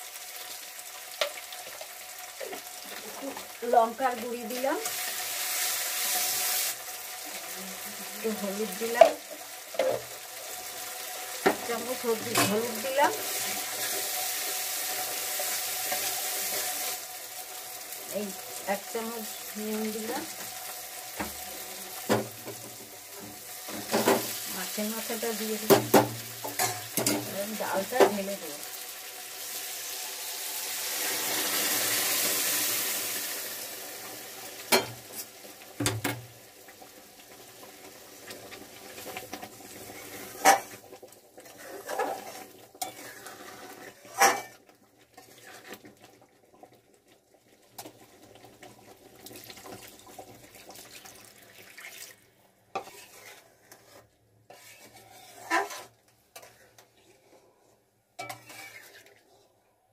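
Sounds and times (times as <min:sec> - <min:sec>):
food hissing in hot pan: 0:04.5 - 0:09.4, 0:12.7 - 0:22.2, 0:27.5 - 0:35.3
spatula scraping pan: 0:11.4 - 0:14.2, 0:23.2 - 0:28.2, 0:39.3 - 0:40.8, 0:41.4 - 0:46.0, 0:52.7 - 0:59.5
water pouring: 0:49.1 - 0:52.4.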